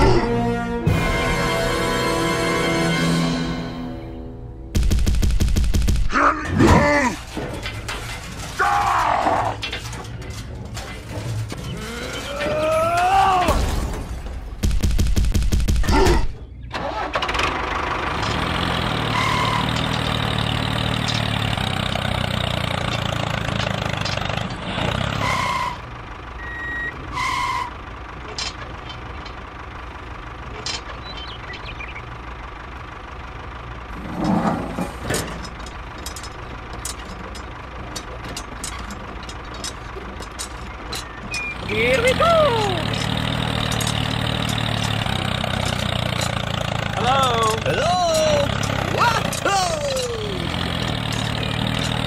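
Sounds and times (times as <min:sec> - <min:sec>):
low hum: 0:00.0 - 0:16.7
engine idling: 0:00.1 - 0:52.0
short electronic beeps: 0:26.4 - 0:27.0.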